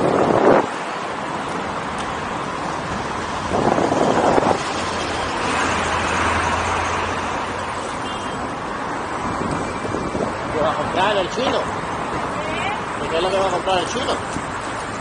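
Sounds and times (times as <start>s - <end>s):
wind rushing: 0.0s - 7.8s, 8.4s - 11.0s
road traffic noise: 0.0s - 15.0s.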